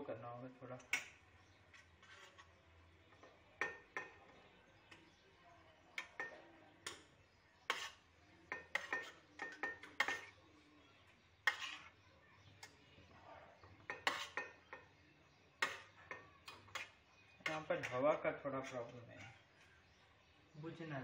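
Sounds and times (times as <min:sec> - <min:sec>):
spoon scraping metal pan: 0:00.8 - 0:04.2, 0:06.0 - 0:10.4, 0:11.3 - 0:12.0, 0:13.8 - 0:15.0, 0:15.6 - 0:19.6.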